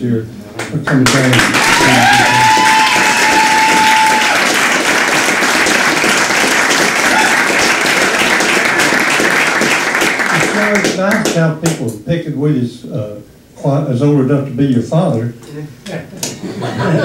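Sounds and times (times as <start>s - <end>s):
audience applauding: 0.9s - 11.4s.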